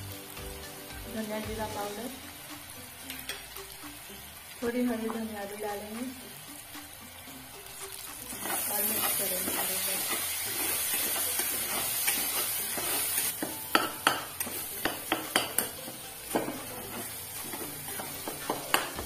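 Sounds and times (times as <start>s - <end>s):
frying in oil sizzle: 0.0s - 19.0s
spoon stirring and scraping: 8.2s - 19.0s
spoon clinking against pot: 8.3s - 19.0s.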